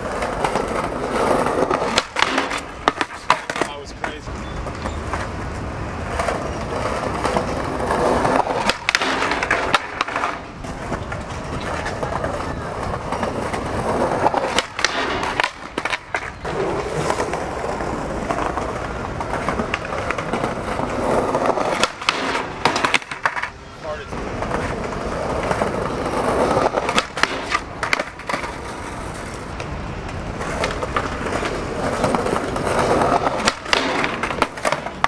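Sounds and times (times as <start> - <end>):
skateboard clacking on ground: 0.0 - 35.0
skateboard wheels rolling on stone: 0.0 - 35.0.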